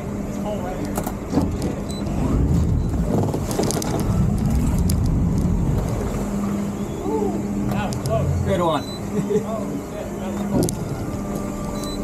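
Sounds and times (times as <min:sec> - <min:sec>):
boat engine humming: 0:00.0 - 0:12.0
knocks and creaks: 0:00.9 - 0:06.6.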